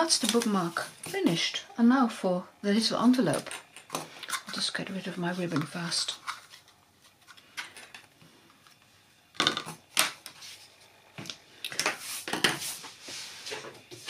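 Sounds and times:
objects scraping and knocking on desk: 0:11.7 - 0:14.0.

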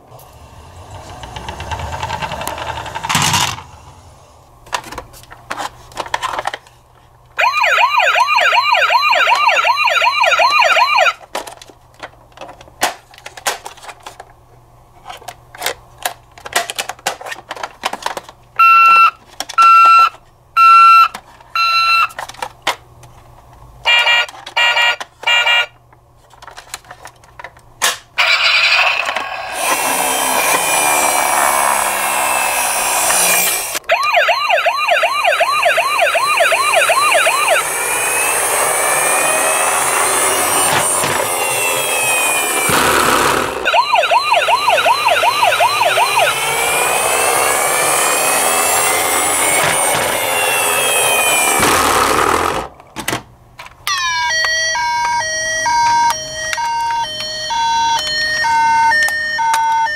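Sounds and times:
toy ambulance warbling siren: 0:07.4 - 0:11.2, 0:18.6 - 0:22.4, 0:23.9 - 0:25.7, 0:28.2 - 0:51.8, 0:53.8 - 0:59.9
plastic toys rattling in a box: 0:15.0 - 0:18.4, 0:26.2 - 0:27.6
loud rushing noise: 0:28.2 - 0:33.8.

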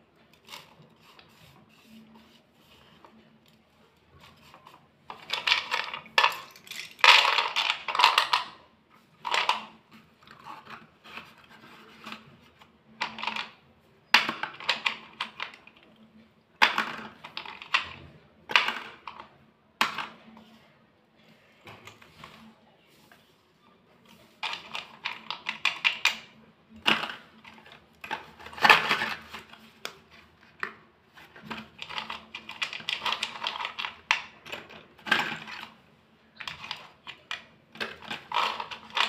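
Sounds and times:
pencil sticks clattering and clicking: 0:00.3 - 0:02.4, 0:04.3 - 0:08.6, 0:09.2 - 0:13.6, 0:14.2 - 0:15.9, 0:16.6 - 0:20.4, 0:24.2 - 0:39.0.

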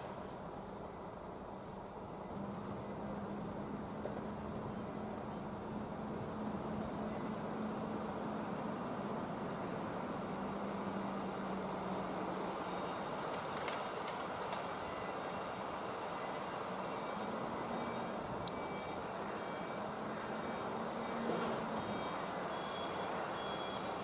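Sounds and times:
electric train humming: 0:00.0 - 0:24.0
faint clicks: 0:13.0 - 0:14.7.

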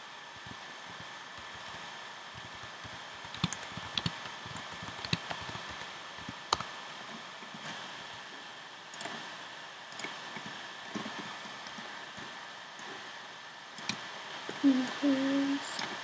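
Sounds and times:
background hiss: 0:00.0 - 0:16.0
computer keyboard and mouse clicks: 0:01.4 - 0:06.7, 0:09.0 - 0:09.2, 0:09.9 - 0:11.9, 0:13.8 - 0:14.0.

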